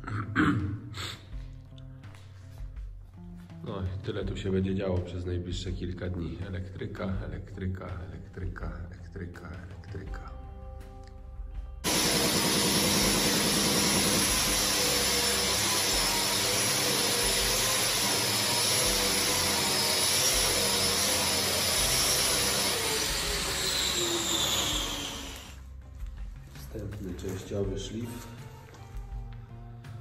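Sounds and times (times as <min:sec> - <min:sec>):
power tool running: 0:11.8 - 0:25.6.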